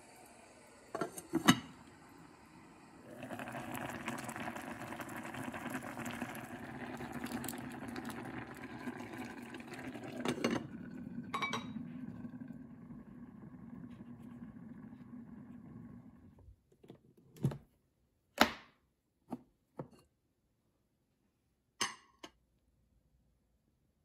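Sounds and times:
water boiling hard in pot: 0:00.0 - 0:16.4
glass lid clinking on pot: 0:11.3 - 0:11.8.

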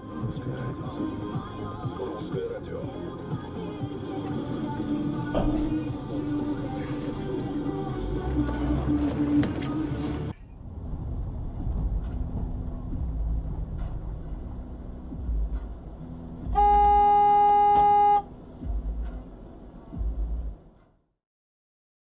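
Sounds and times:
car engine rumble and road noise: 0:00.0 - 0:20.9
car horn blast: 0:16.5 - 0:18.3.

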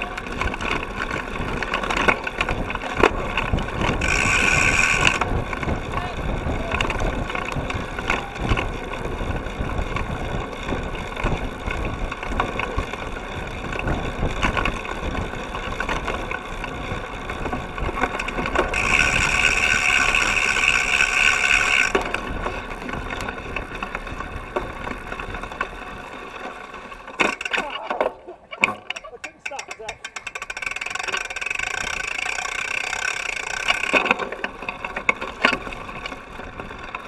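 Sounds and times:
bike frame rattling: 0:00.0 - 0:37.0
high steady buzz: 0:03.8 - 0:05.4.

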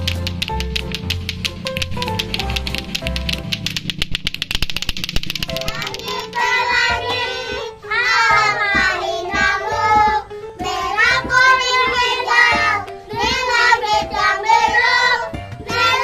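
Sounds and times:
young children singing: 0:05.6 - 0:16.0.

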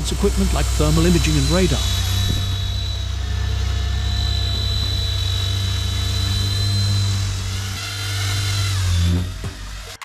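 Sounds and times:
rotor humming: 0:00.0 - 0:10.0
toy helicopter motor whine: 0:00.0 - 0:10.0.

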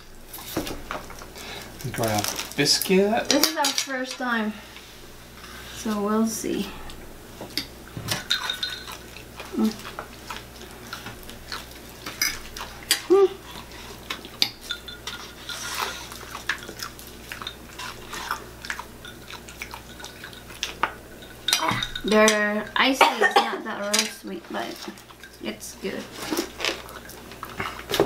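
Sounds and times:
fork scraping a plate: 0:14.6 - 0:16.6.

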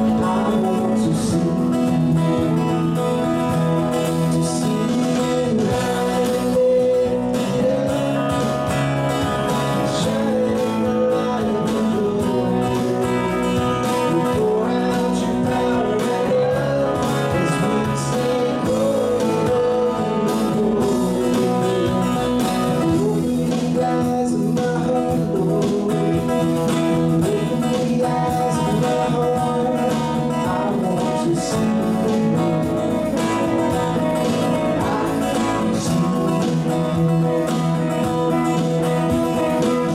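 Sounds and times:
drums: 0:00.0 - 0:39.9
electric bass: 0:00.0 - 0:39.9
electric guitar: 0:00.0 - 0:39.9
man singing: 0:00.0 - 0:39.9
strummed acoustic guitar: 0:00.0 - 0:39.9.

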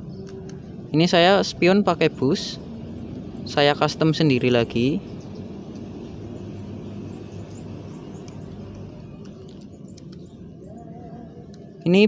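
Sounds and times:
low outdoor rumble: 0:00.0 - 0:12.0
faint ticks: 0:08.2 - 0:10.3.

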